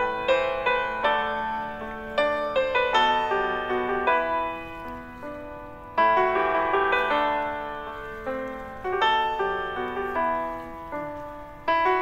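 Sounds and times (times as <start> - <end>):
slow piano chords: 0.0 - 12.0.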